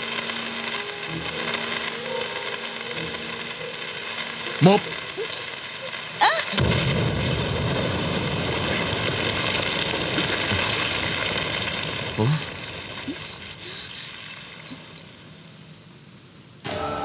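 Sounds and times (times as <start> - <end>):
explosion with rubble rumbling: 6.0 - 13.5.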